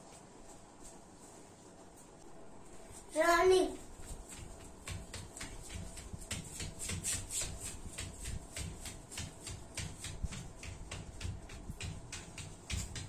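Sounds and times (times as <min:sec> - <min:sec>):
child's rapid forceful breaths: 0:03.0 - 0:13.0.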